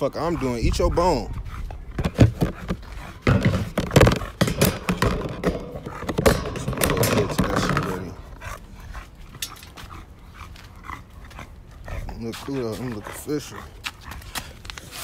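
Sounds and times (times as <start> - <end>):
sharp knocks and clatter: 2.0 - 8.1.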